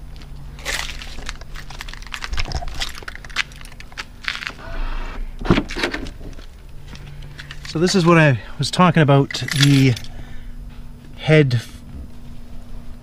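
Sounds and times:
keys jingling: 7.0s - 8.2s, 9.2s - 10.2s.

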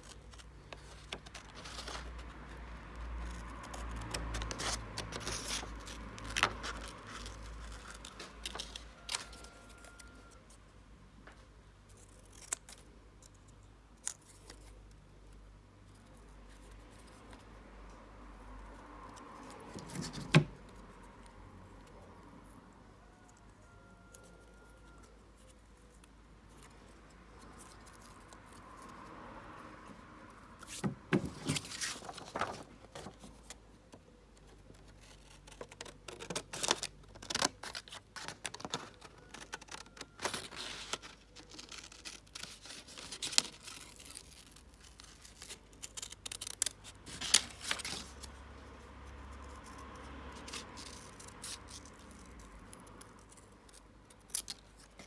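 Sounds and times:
card rustling: 0.0s - 10.6s, 30.6s - 49.8s.

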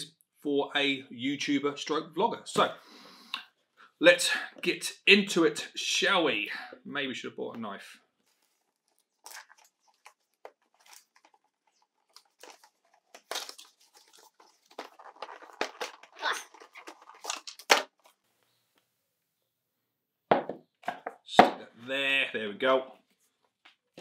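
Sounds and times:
packaging rustling and crackling: 8.2s - 18.2s
cardboard tearing: 8.4s - 18.0s.

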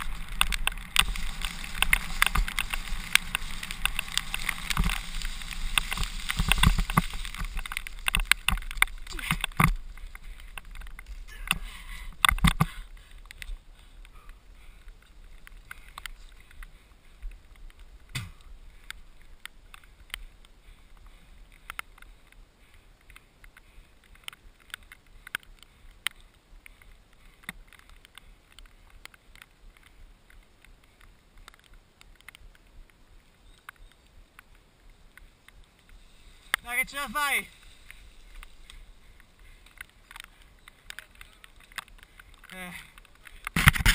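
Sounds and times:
mountain bike rattling on dirt trail: 0.0s - 14.0s, 33.4s - 43.9s
faint hiss: 0.0s - 43.9s.

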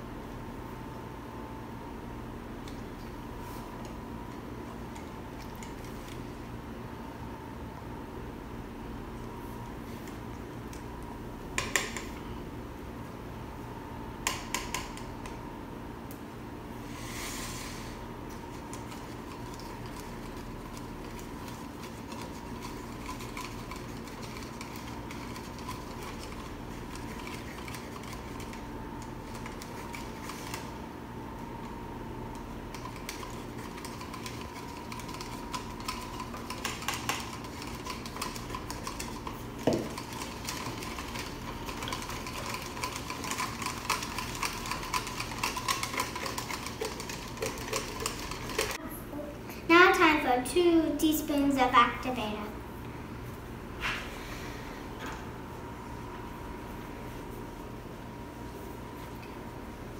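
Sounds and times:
steady hum: 0.0s - 59.9s
plastic spoons scraping plastic cups: 18.6s - 28.6s, 32.7s - 48.8s.

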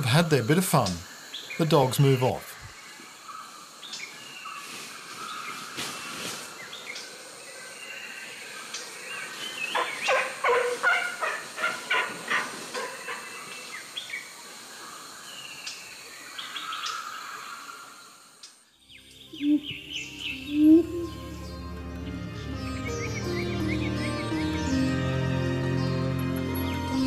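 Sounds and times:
birds calling: 0.0s - 18.0s, 18.8s - 27.0s
rapid repeated bird calls: 0.7s - 18.7s.

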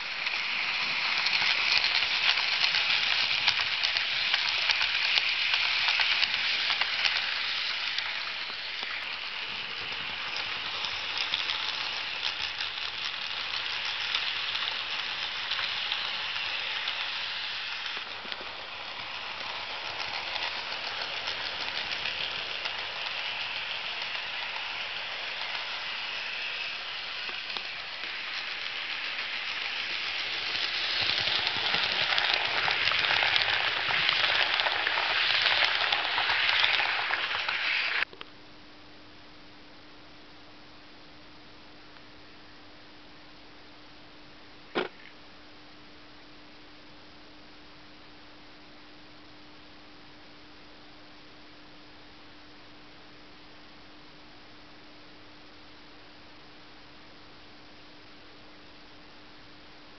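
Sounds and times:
model train wheels rattling on rails: 0.0s - 38.1s.

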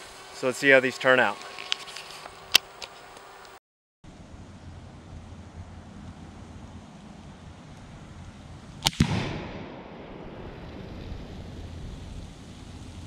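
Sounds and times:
rifle shot: 8.8s - 10.4s
gunshot echo: 8.8s - 10.5s.

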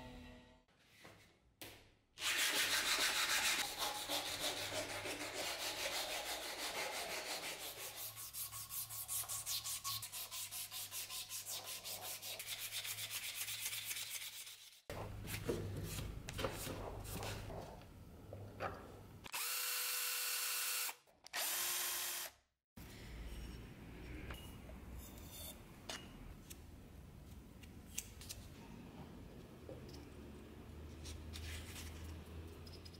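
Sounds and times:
sanding cloth rasping on wood: 2.2s - 14.8s.

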